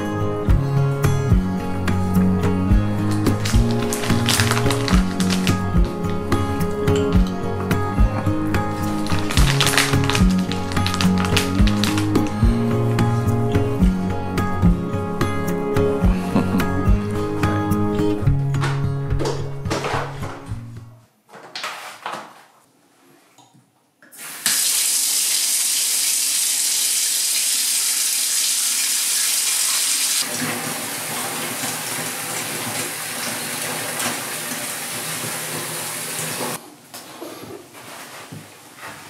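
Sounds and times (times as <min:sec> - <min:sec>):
faucet water pouring into tub: 0:03.2 - 0:05.9, 0:08.8 - 0:12.4, 0:24.1 - 0:36.6.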